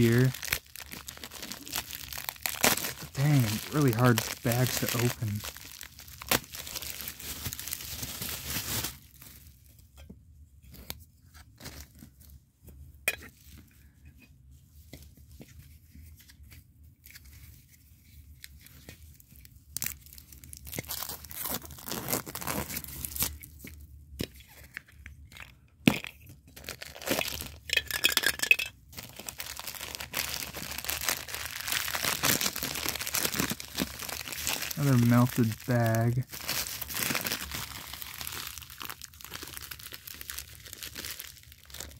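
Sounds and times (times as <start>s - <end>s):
plastic crinkling and tearing: 0.0s - 9.7s, 17.0s - 23.7s, 26.5s - 27.7s, 28.9s - 41.9s
plastic rustling: 0.0s - 9.7s, 28.9s - 41.9s.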